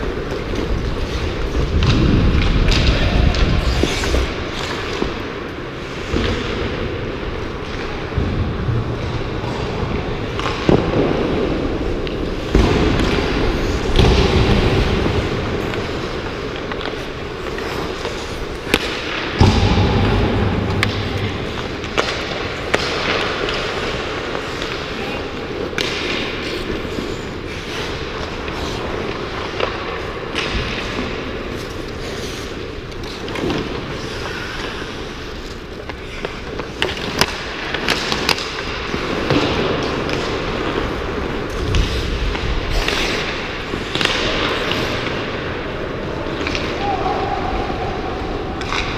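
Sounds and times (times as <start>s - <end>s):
hockey sticks and puck clacking: 0.0s - 48.9s
skate blades scraping ice: 2.5s - 6.6s, 14.6s - 19.4s, 21.1s - 46.8s.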